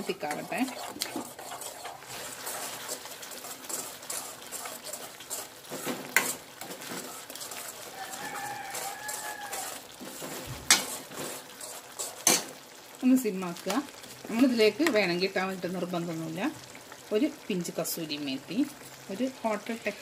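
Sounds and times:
ladle scraping a steel pan: 0.0s - 12.5s.

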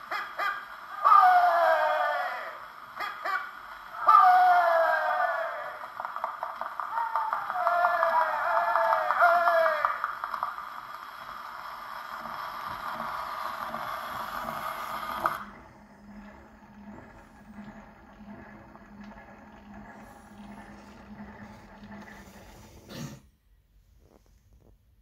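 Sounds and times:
gramophone needle hissing: 0.0s - 22.8s
turntable low pulse: 6.1s - 22.9s.

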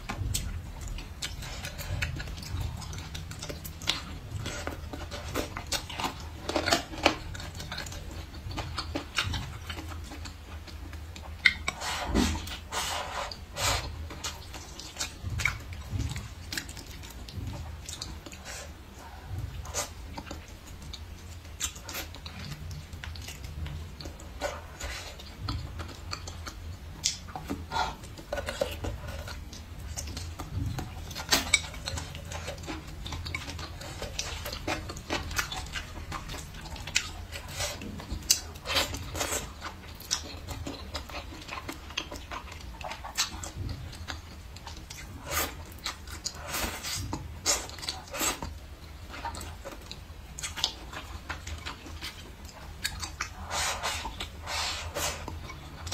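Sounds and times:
chewing with wet mouth smacks: 0.0s - 55.9s
faint low hum: 0.0s - 55.9s
slurping noodles: 11.7s - 14.1s, 53.2s - 55.9s.

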